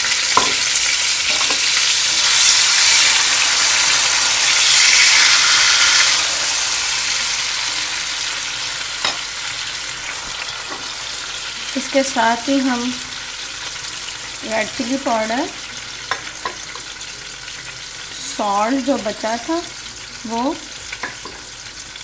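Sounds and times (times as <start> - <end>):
tomatoes sizzling in hot oil: 0.0 - 22.0.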